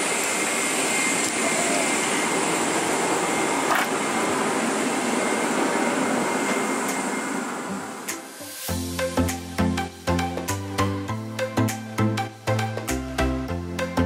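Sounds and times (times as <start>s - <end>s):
faint high whine: 0.0s - 10.2s.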